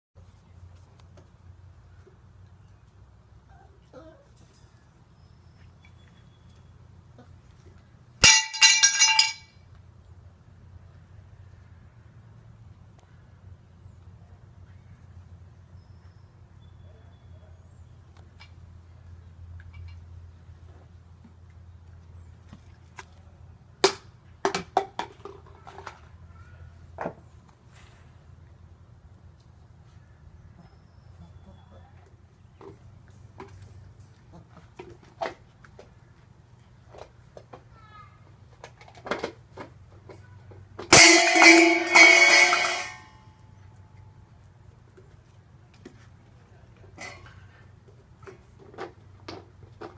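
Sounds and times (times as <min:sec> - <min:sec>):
loud metallic clang: 0:08.2 - 0:09.5, 0:40.9 - 0:43.3.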